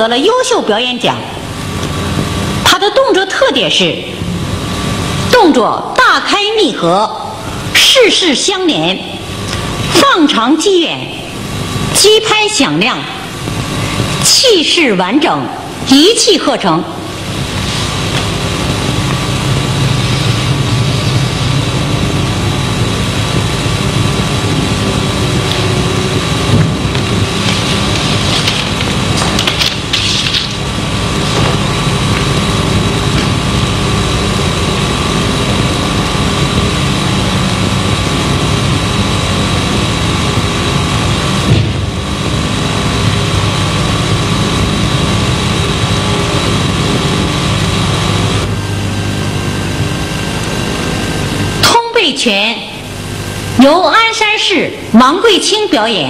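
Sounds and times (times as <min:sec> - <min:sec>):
film soundtrack hum and hiss: 0:00.0 - 0:56.0.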